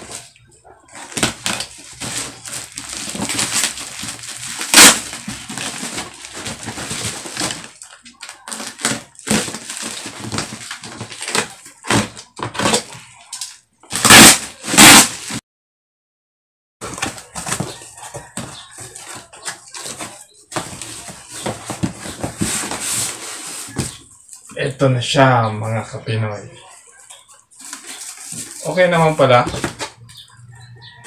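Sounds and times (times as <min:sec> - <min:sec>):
plastic wrapping crinkling and tearing: 0:00.0 - 0:15.4, 0:26.8 - 0:29.9.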